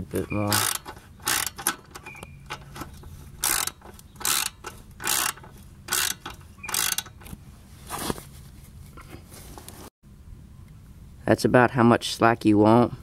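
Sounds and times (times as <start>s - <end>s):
socket ratchet clicking: 0.3s - 7.4s.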